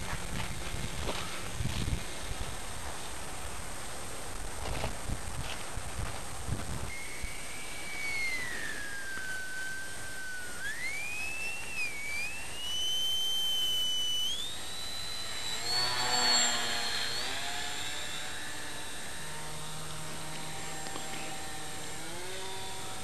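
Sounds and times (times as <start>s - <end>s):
electric motor propeller whining: 6.9s - 23.0s.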